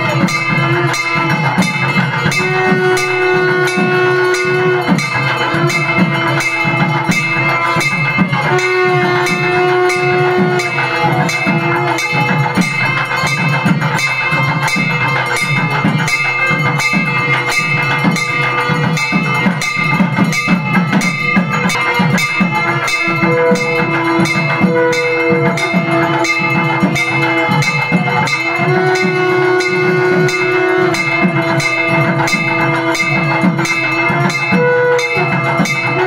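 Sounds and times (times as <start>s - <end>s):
bells ringing: 0.0s - 36.0s
fast drumbeat: 0.0s - 36.0s
wind instrument held notes: 0.0s - 36.0s.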